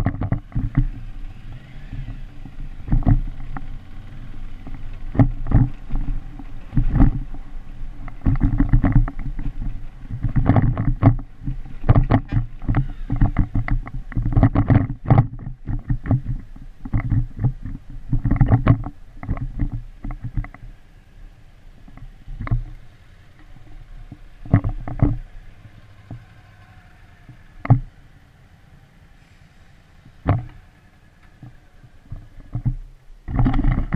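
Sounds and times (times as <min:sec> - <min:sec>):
knocks and jolts over bumps: 0:00.0 - 0:20.8
motorcycle engine rumble: 0:00.0 - 0:33.9.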